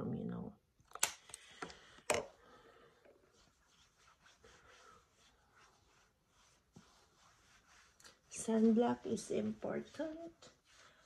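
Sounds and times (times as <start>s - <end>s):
faint soft rustles: 2.3s - 11.0s.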